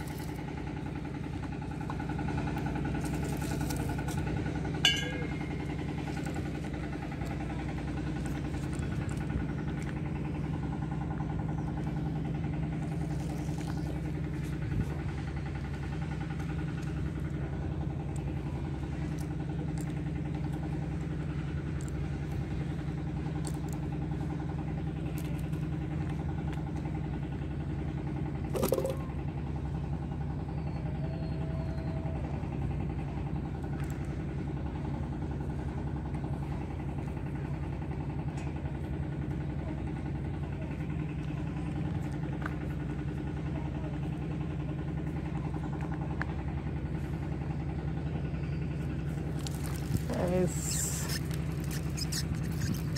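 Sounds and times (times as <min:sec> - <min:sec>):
motor humming: 0:47.0 - 0:52.9.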